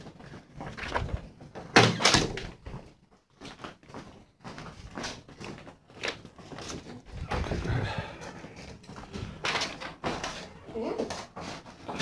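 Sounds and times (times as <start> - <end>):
doors opening and closing: 7.1 - 8.2.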